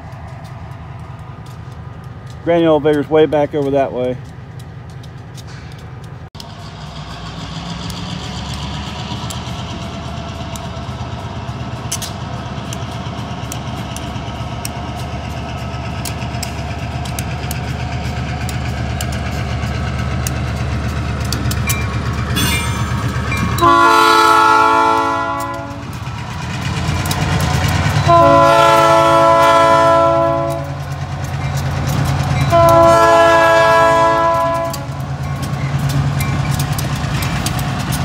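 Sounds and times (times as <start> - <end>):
diesel locomotive engine rumble: 0.0 - 38.0
wheels clicking on rail: 0.0 - 38.0
locomotive horn: 23.4 - 26.0, 27.9 - 30.9, 32.4 - 35.0.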